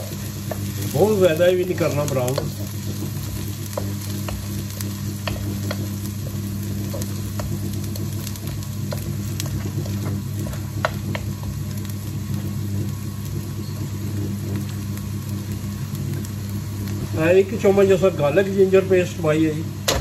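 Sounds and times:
wooden spoon scraping a pan: 0:00.0 - 0:11.6
onions sizzling in hot oil: 0:00.0 - 0:20.0
steady low hum: 0:00.0 - 0:20.0.

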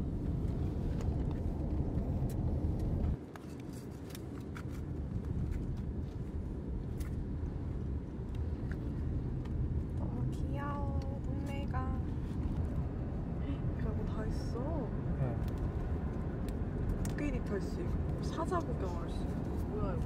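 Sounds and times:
car cabin road and engine rumble: 0:00.0 - 0:20.0.

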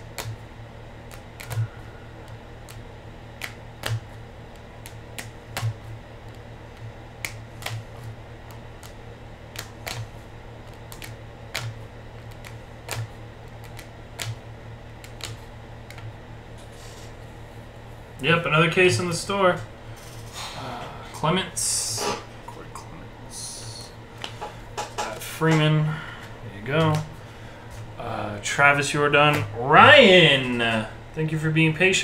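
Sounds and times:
steady low hum: 0:00.0 - 0:32.0
sharp clicks and taps: 0:01.1 - 0:01.7, 0:03.4 - 0:14.4.

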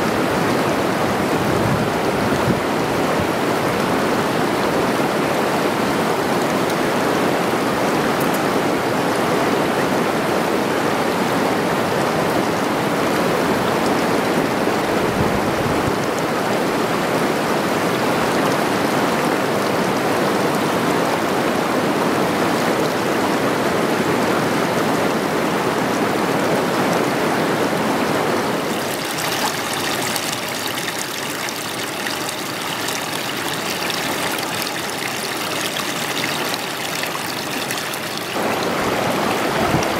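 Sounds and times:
waterfall rushing over rock: 0:27.4 - 0:39.9.

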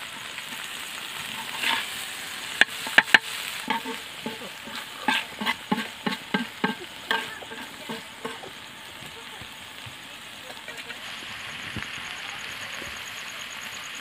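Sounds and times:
fish sizzling in oil: 0:00.0 - 0:14.0
spatula scraping a pan: 0:00.4 - 0:08.6
spatula knocking on a pan: 0:02.6 - 0:04.4, 0:05.1 - 0:08.5.

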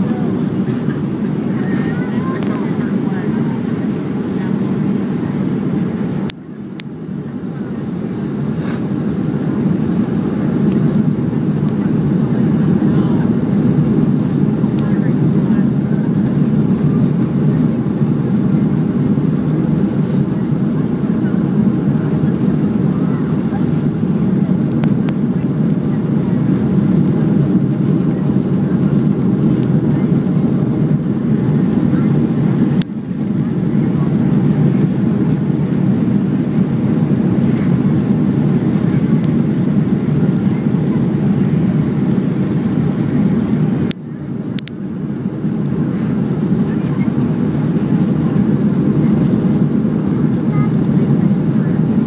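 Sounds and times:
rushing air: 0:00.0 - 0:06.3, 0:08.2 - 0:14.7, 0:35.9 - 0:38.7, 0:45.0 - 0:50.5
airplane cabin engine roar: 0:00.0 - 0:52.0.

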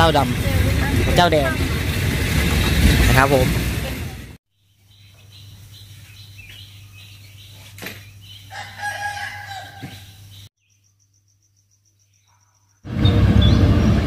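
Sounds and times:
rooster crowing: 0:08.5 - 0:10.2.

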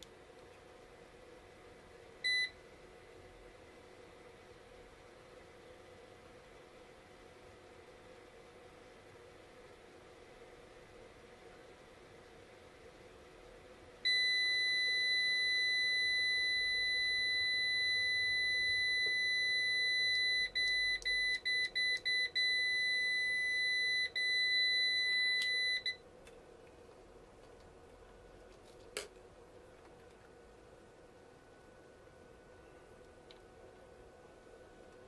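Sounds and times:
high-pitched alarm beep: 0:14.1 - 0:26.0.

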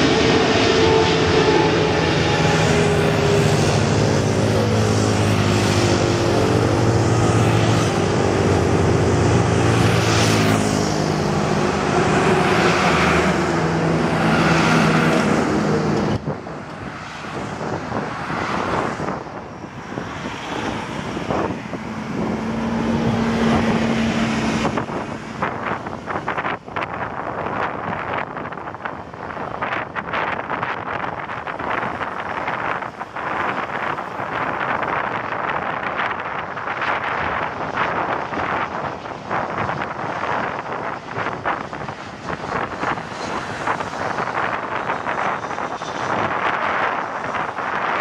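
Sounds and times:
jet engine roar: 0:00.0 - 0:48.0
wind noise on microphone: 0:00.0 - 0:48.0.

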